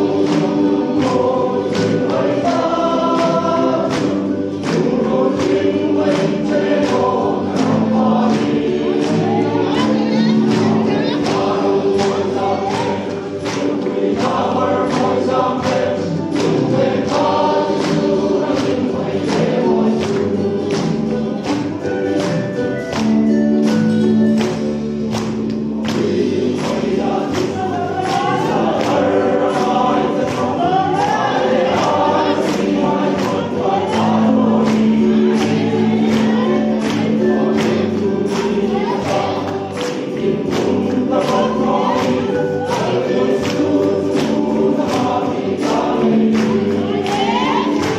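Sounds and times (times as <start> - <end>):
men's choir singing gospel: 0.0 - 47.9
steady percussive beat: 0.0 - 47.9.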